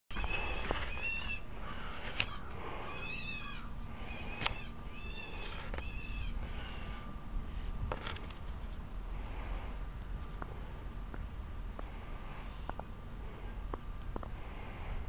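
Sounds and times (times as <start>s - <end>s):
bird calling: 0.1s - 7.2s.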